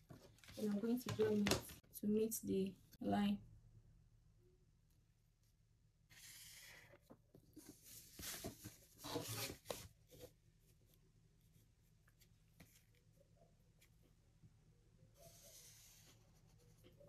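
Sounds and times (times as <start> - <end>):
ruler sliding on paper: 6.1 - 7.0, 15.2 - 16.7.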